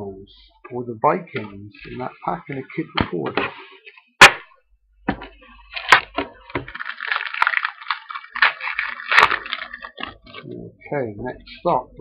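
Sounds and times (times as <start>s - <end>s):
foil wrapper tearing and crinkling: 5.6s - 10.4s.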